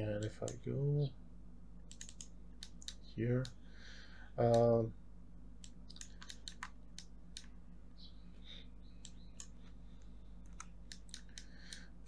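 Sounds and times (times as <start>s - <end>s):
low electrical hum: 0.0s - 12.0s
mouse and keyboard clicks: 1.9s - 3.6s, 5.6s - 7.5s, 10.4s - 11.8s.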